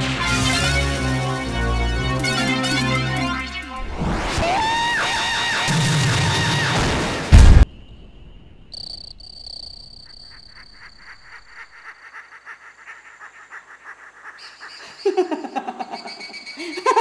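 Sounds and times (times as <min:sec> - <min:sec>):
frogs croaking: 0:07.7 - 0:17.0
insects trilling: 0:07.7 - 0:17.0
person laughing loudly: 0:14.8 - 0:17.0.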